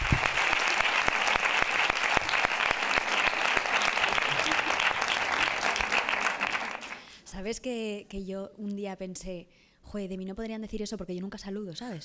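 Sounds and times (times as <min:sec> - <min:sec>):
audience applause: 0:00.0 - 0:07.1.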